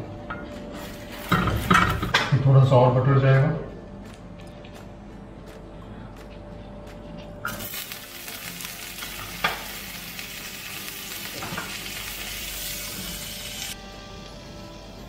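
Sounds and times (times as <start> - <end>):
butter sizzling on griddle: 7.5 - 15.0.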